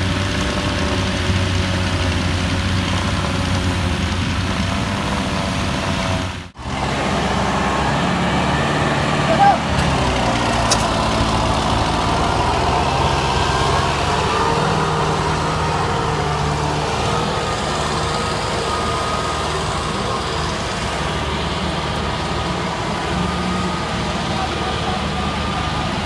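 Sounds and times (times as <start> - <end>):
tractor diesel engines running: 0.0 - 26.0
wavering engine whine: 0.0 - 26.0.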